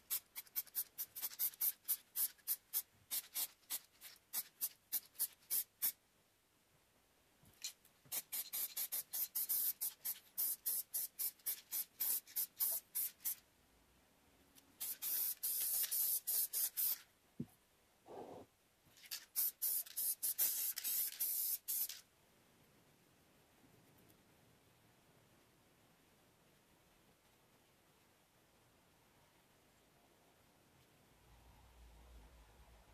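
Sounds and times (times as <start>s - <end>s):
spray paint can hissing: 0.1s - 6.0s, 8.1s - 13.4s, 14.8s - 17.0s, 19.1s - 22.0s.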